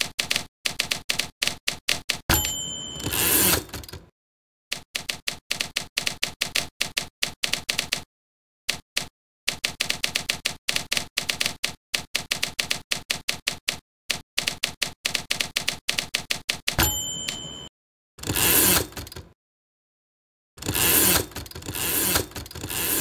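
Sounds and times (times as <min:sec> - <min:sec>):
typewriter keystrokes clacking: 0:00.0 - 0:04.1, 0:04.7 - 0:08.1, 0:08.7 - 0:17.4, 0:18.2 - 0:19.3
typewriter bell ding: 0:02.3 - 0:04.0, 0:16.8 - 0:18.8.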